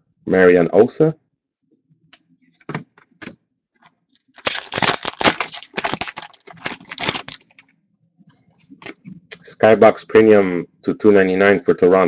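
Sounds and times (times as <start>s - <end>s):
wrapper crinkling and tearing: 4.2s - 7.6s.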